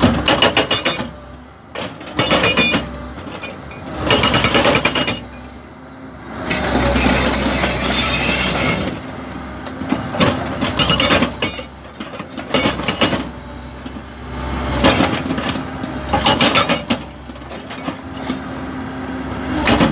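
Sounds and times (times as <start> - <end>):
hydraulic breaker hammering rock: 0.0 - 1.2, 1.8 - 3.0, 4.0 - 5.4, 6.5 - 9.0, 9.8 - 13.4, 14.8 - 18.0, 19.6 - 19.9
excavator engine running: 0.0 - 19.9.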